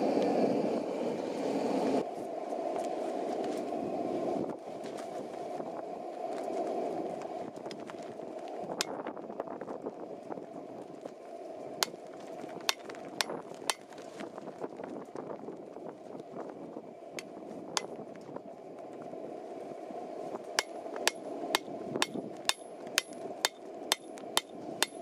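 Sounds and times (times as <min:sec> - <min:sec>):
steady rushing noise: 0:00.0 - 0:25.0
hammer striking steel on anvil: 0:20.6 - 0:25.0.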